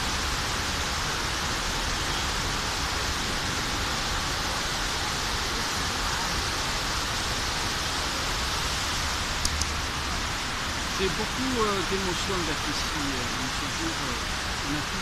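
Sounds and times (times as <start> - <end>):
waterfall rushing into pool: 0.0 - 15.0.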